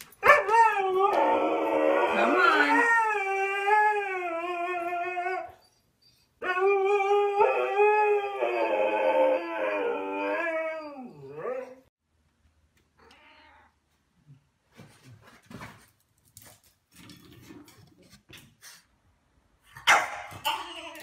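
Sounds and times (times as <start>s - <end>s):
husky howling: 0.2s - 5.6s, 6.4s - 11.9s.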